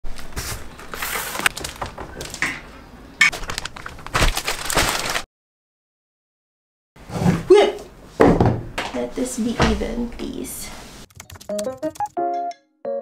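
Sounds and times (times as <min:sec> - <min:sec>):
packaging crackling rustles: 0:00.1 - 0:02.4, 0:03.3 - 0:05.3.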